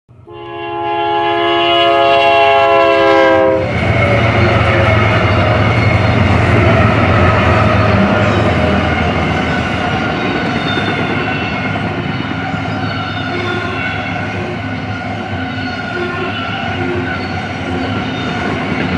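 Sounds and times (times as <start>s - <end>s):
locomotive air horn: 0.2s - 5.6s, 15.9s - 17.2s
diesel engines rumbling: 3.4s - 16.1s.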